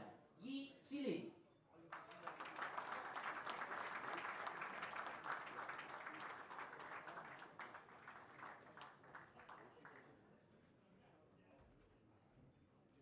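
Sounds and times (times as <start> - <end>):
audience applauding: 1.9 - 10.1.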